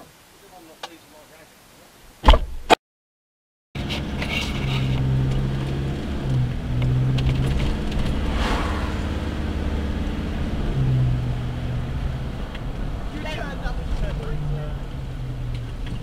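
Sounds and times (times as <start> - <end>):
car engine droning: 3.8 - 16.0
car passing: 6.6 - 15.8.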